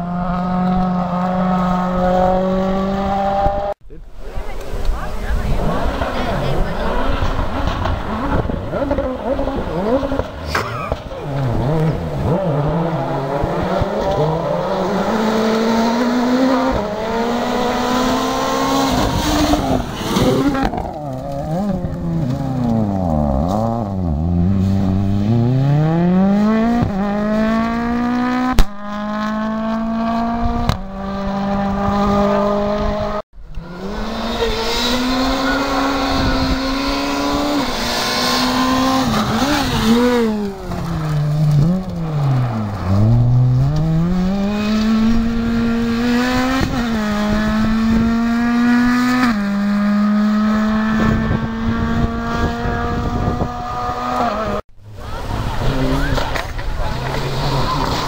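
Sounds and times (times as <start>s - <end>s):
rally car engines at hard throttle: 0.0s - 3.8s, 4.5s - 58.0s
gravel noise: 3.9s - 28.0s, 33.4s - 47.4s, 54.1s - 58.0s.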